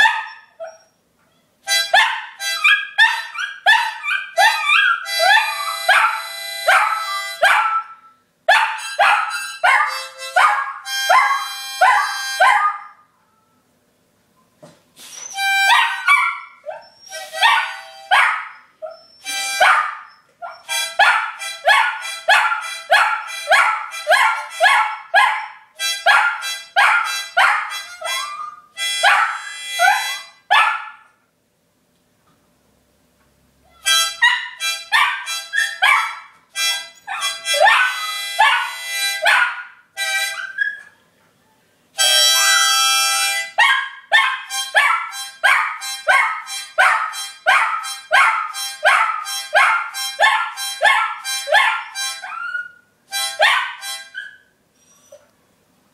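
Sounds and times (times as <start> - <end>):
harmonica short notes: 1.6 - 3.3, 5.0 - 7.4, 8.8 - 12.4, 15.0 - 16.1, 17.1 - 18.1, 19.2 - 19.6, 20.6 - 24.6, 25.8 - 30.4, 33.7 - 35.8, 36.5 - 39.2, 40.0 - 40.6, 42.0 - 43.6, 44.5 - 52.3, 53.1 - 54.2.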